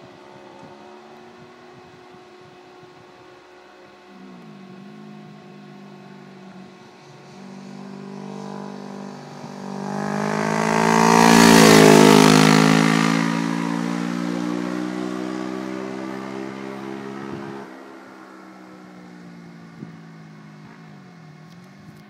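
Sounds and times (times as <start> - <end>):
motorcycle engine passing by: 4.1 - 18.6.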